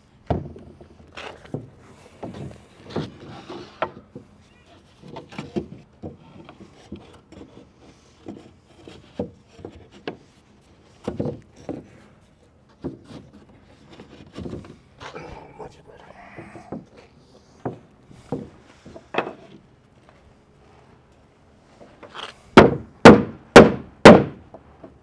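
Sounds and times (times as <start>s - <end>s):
wood scraping and rubbing: 0.4s - 21.0s
wood knocking on wood: 16.4s - 17.0s, 17.6s - 19.5s, 22.6s - 25.0s.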